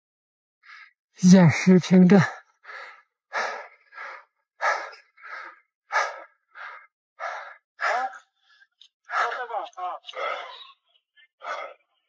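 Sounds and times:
fast heavy breathing: 2.1 - 9.5, 11.4 - 11.9.

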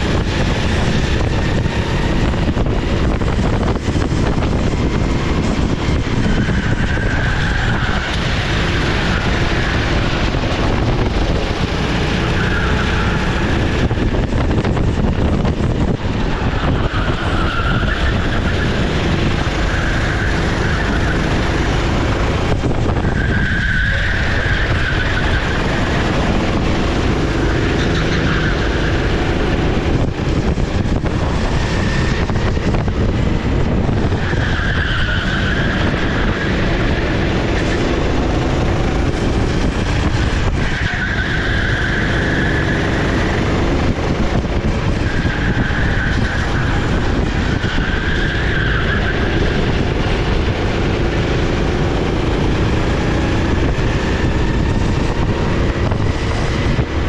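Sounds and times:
kart engine racing: 0.0 - 57.0
mechanical and road noise: 0.0 - 57.0.

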